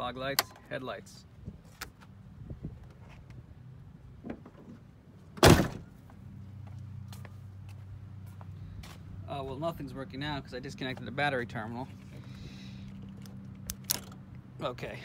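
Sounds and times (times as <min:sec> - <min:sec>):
truck door slamming: 0:05.4 - 0:05.9.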